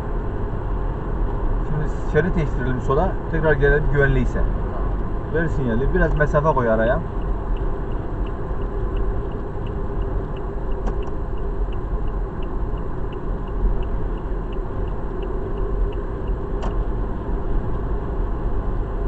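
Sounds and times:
engine and tyre rumble: 0.0s - 19.0s
car turn signal clicking: 7.2s - 16.8s.

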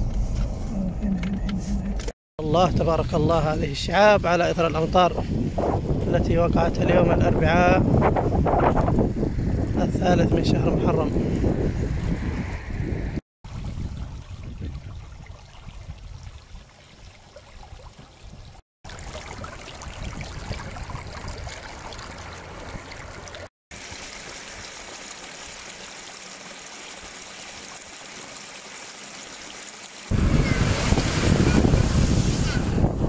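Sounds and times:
floodwater rushing over stones: 18.8s - 32.9s.

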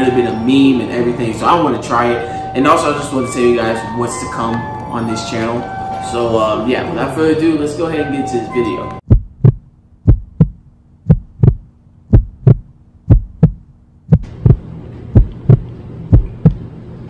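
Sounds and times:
low steady hum: 0.0s - 17.0s
heartbeat thumps: 9.0s - 16.7s.

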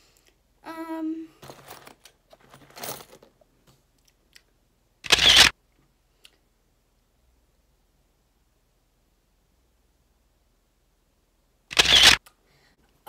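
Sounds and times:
girl humming: 0.6s - 1.4s
handling noise: 1.4s - 3.8s.

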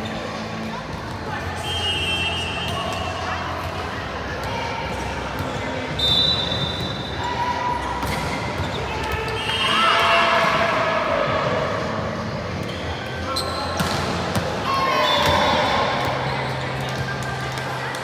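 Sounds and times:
shoes squeaking on court floor: 7.8s - 9.8s, 12.6s - 17.2s.

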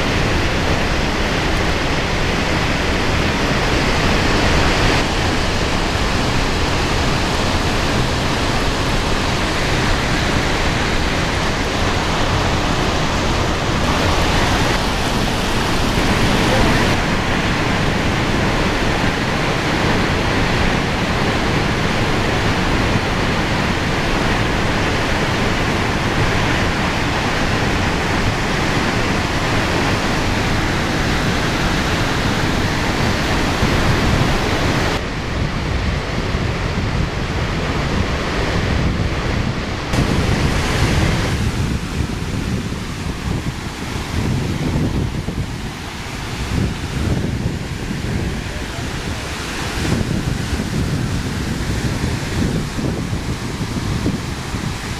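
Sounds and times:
roar of rushing water: 0.0s - 54.9s.

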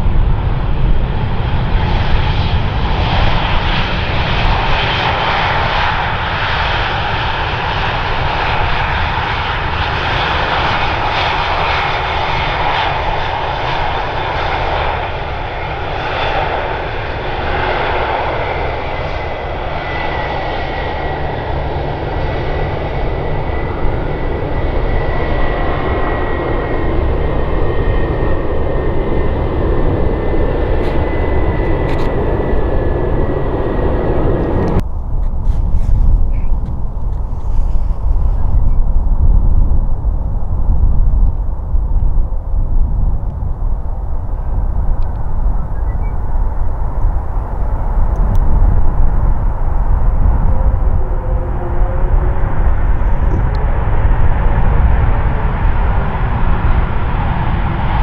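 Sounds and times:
jet engines rushing: 0.0s - 58.0s.

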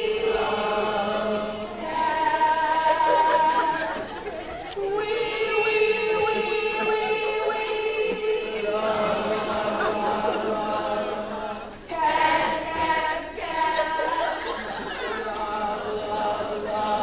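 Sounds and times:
group singing unaccompanied: 0.0s - 17.0s.

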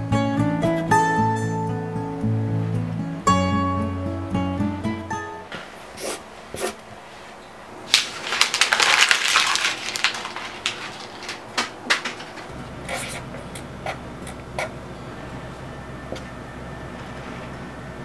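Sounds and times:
paper being crumpled: 7.9s - 12.5s.

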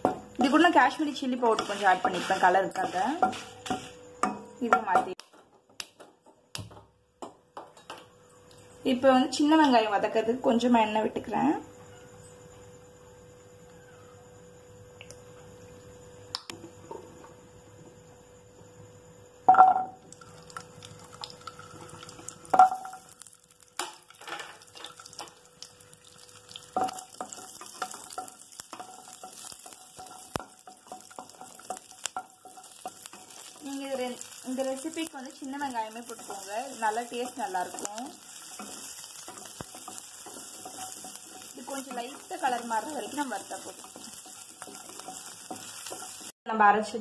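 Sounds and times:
shallots sizzling in oil: 0.0s - 5.3s, 20.0s - 47.0s
wooden spatula stirring: 1.0s - 3.9s, 27.0s - 34.9s, 35.7s - 46.4s.

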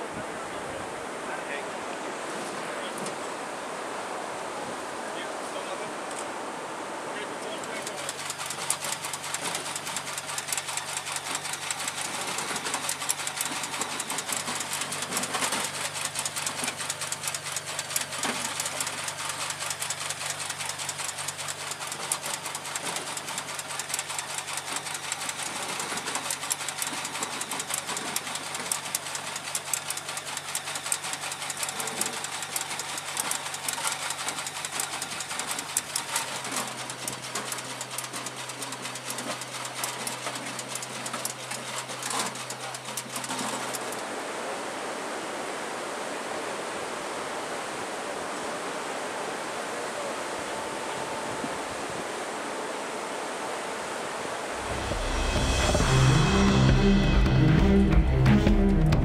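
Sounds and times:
low machinery hum: 54.4s - 59.0s.

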